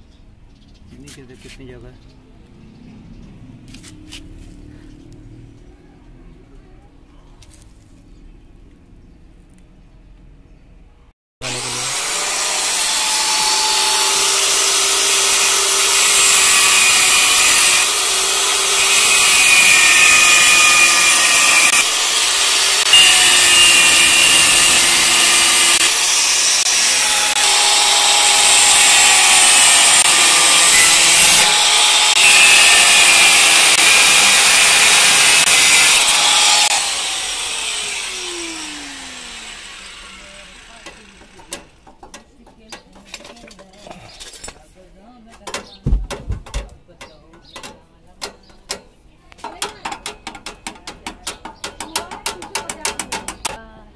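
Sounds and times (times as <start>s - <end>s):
angle grinder cutting metal: 11.4s - 42.1s.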